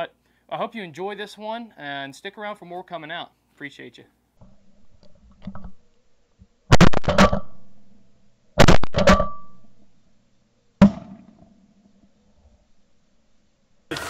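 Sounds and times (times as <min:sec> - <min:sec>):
shotgun blasts echoing: 0:08.6 - 0:09.6.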